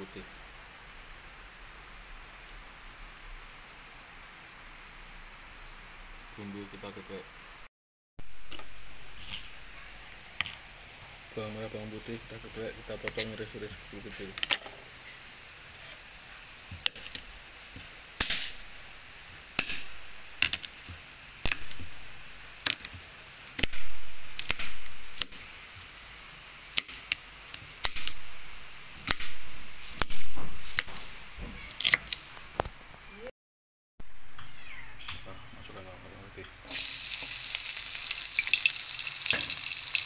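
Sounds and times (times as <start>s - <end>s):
garlic sizzling in a wok: 8.2s - 28.0s, 36.6s - 40.0s.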